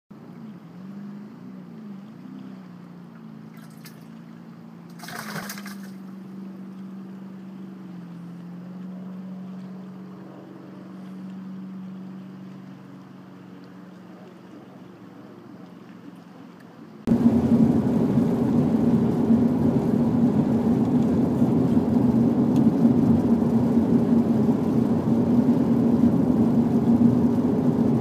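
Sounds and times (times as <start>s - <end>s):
boat motor humming: 0.1s - 28.0s
water moving past: 1.9s - 17.1s.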